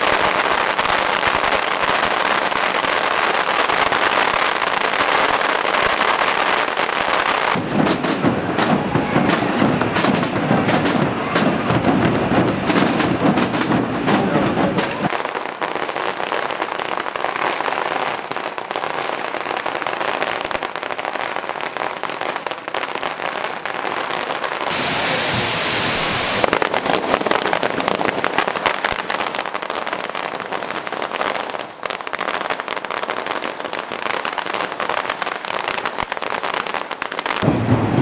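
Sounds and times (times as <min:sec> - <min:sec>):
firecrackers crackling and popping: 0:00.0 - 0:38.0
steady hiss: 0:24.7 - 0:26.6.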